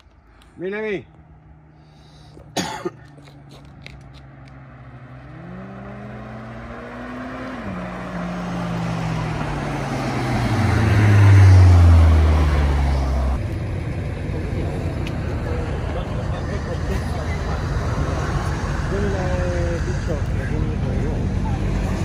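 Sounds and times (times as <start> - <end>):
car engine accelerating past: 4.0 - 13.4.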